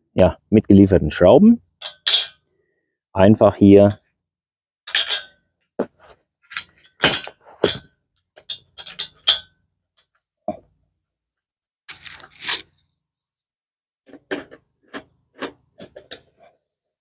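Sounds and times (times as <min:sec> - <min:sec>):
rustling scrape: 0:11.9 - 0:12.7.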